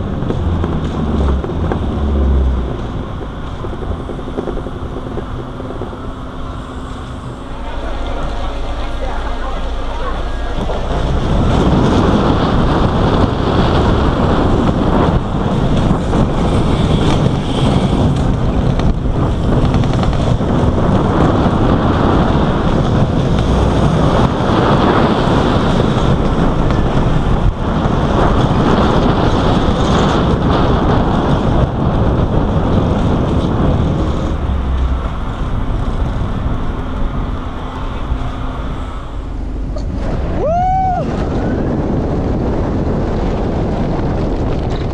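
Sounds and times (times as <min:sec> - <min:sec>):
low rumble: 0:00.0 - 0:44.9
wind buffeting microphone: 0:00.0 - 0:44.9.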